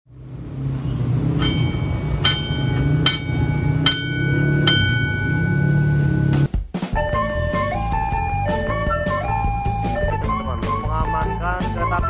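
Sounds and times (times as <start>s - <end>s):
steady low rumble: 0.1s - 6.5s
level crossing bell strikes: 1.4s - 6.4s.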